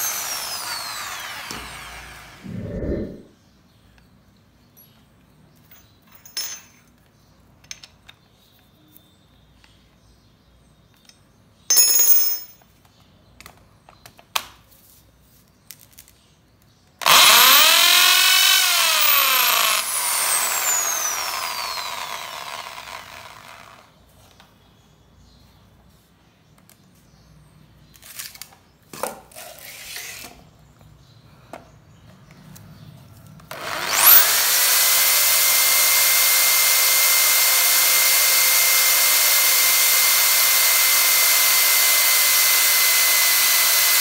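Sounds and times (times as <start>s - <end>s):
drill drilling into wood: 0.0s - 3.2s, 17.0s - 23.9s, 33.5s - 44.0s.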